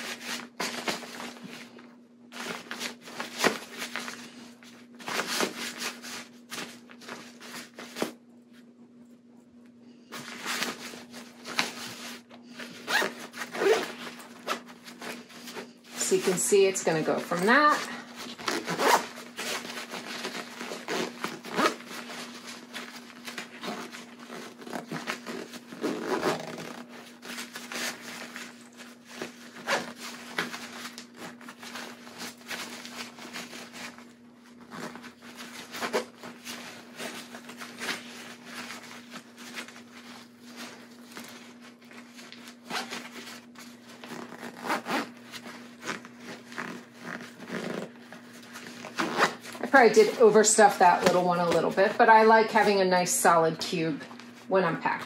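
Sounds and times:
fabric scraping and rustling: 10.1 - 52.8
zipper being pulled closed: 10.2 - 16.2, 17.2 - 39.8, 42.6 - 50.2.

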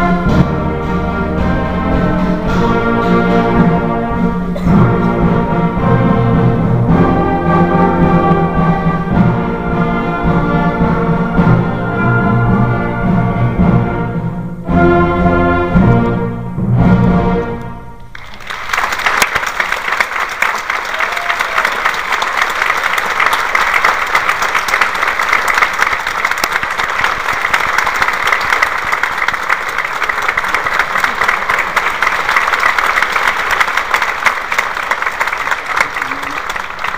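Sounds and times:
audience applauding: 18.1 - 36.9.

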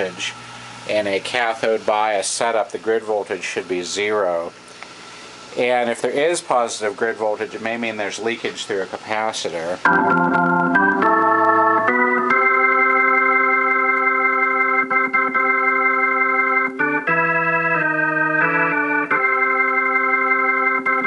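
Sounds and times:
organ sustained chords: 9.8 - 21.0.

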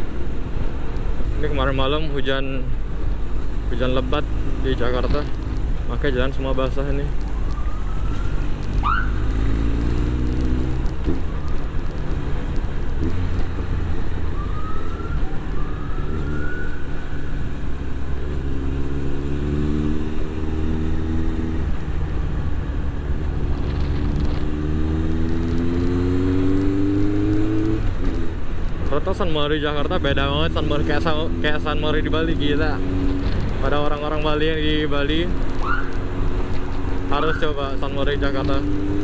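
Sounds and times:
motorcycle engine revving: 7.9 - 28.4, 29.8 - 39.0.

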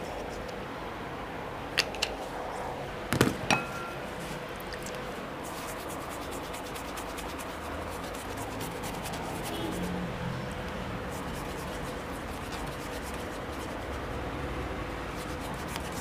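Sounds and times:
ringing clink: 3.5 - 4.0
shaving brush whisked in bowl: 5.4 - 10.0, 11.1 - 14.4, 15.0 - 16.0.

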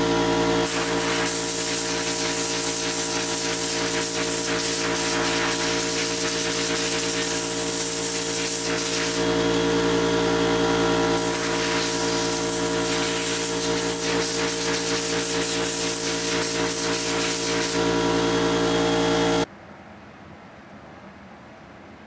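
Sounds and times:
constant machine hum: 0.0 - 22.0
water spraying from nozzle: 0.6 - 9.2, 11.2 - 17.8.

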